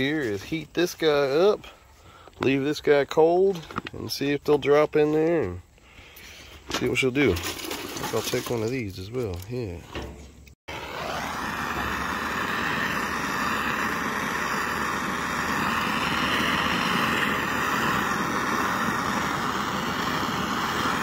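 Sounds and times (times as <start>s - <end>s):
propane torch hissing: 10.7s - 21.0s.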